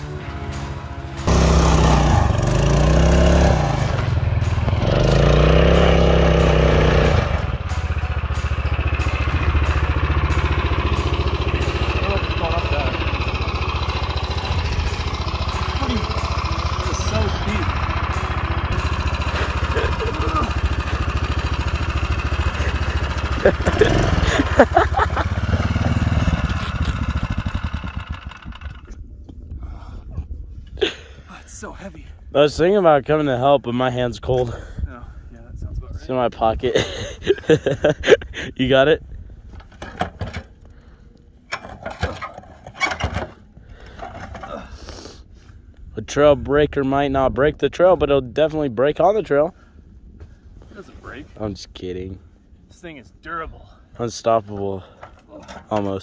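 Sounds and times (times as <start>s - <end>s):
motorbike engine under load: 3.8s - 28.9s, 39.6s - 40.6s, 41.5s - 44.8s, 54.8s - 56.0s.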